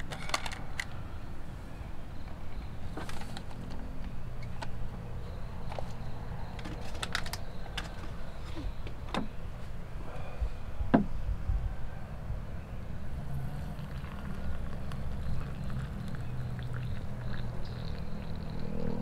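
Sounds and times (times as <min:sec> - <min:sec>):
cups and packaging clicking: 0:05.6 - 0:09.3.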